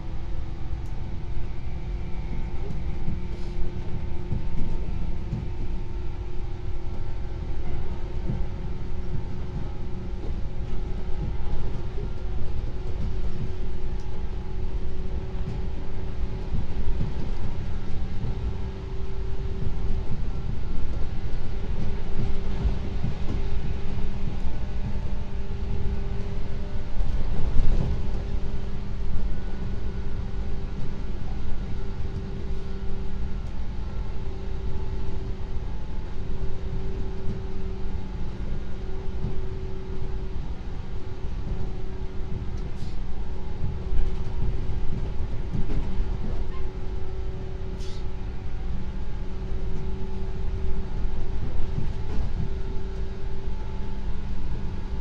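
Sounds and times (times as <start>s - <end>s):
train wheels rumbling: 0.0s - 55.0s.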